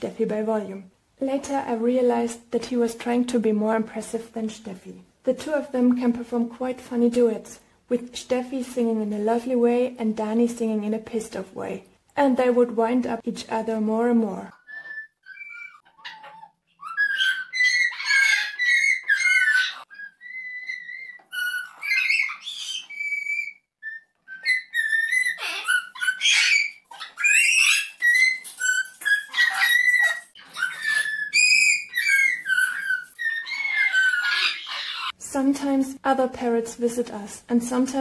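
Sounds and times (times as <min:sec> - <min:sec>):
parrots harsh calls: 0:14.5 - 0:35.2
parrots whistling melodies: 0:14.5 - 0:35.2.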